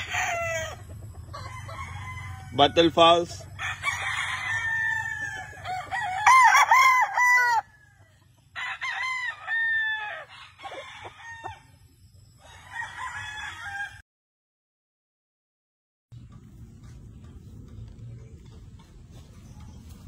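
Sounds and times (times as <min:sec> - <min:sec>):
roosters crowing: 0:00.0 - 0:14.0.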